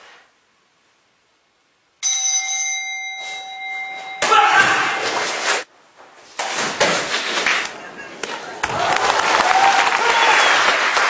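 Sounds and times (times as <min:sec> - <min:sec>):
bell-like ring: 0:02.0 - 0:05.0.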